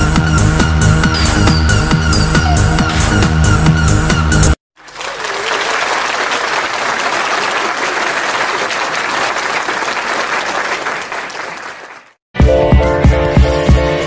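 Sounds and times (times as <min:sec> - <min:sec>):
music with a beat: 0:00.0 - 0:04.6, 0:12.4 - 0:14.0
crowd applauding: 0:04.8 - 0:12.2.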